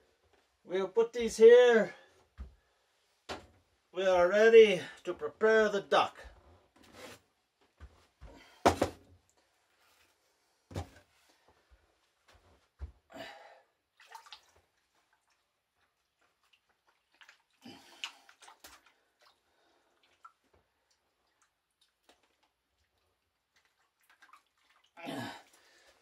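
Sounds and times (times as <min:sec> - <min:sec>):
water splashing: 0:14.0 - 0:15.4, 0:16.0 - 0:19.4, 0:23.5 - 0:25.9.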